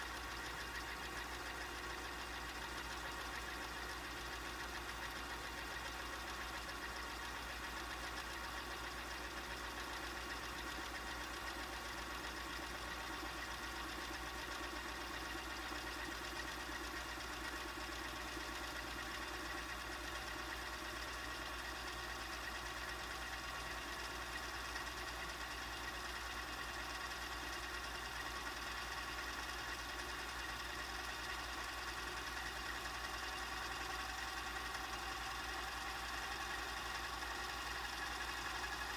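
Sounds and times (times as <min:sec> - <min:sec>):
tape rewinding whir: 0:21.9 - 0:38.9.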